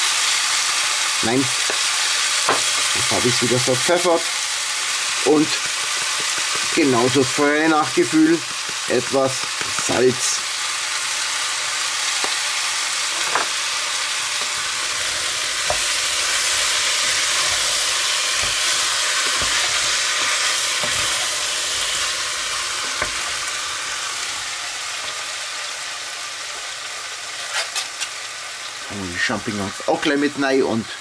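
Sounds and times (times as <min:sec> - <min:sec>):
food sizzling in a pot: 0:00.0 - 0:31.0
wooden spatula stirring: 0:02.7 - 0:10.5, 0:14.2 - 0:24.3
spatula knocking on pot: 0:05.5 - 0:07.3, 0:08.2 - 0:10.0, 0:15.6 - 0:21.4.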